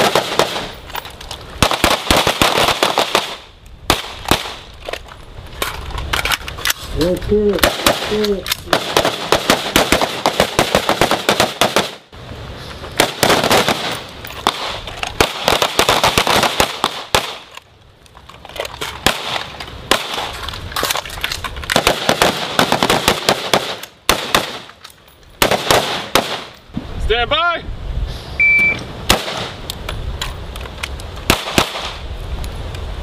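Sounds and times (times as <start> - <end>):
rapid gunfire: 0.0 - 0.7, 1.6 - 4.6, 7.6 - 12.0, 13.0 - 17.4, 21.8 - 24.6, 25.4 - 26.5.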